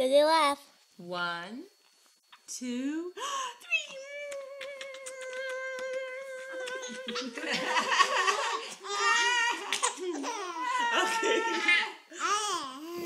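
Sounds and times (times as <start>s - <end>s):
baby laughing: 4.6s - 12.6s
people laughing: 6.6s - 12.0s.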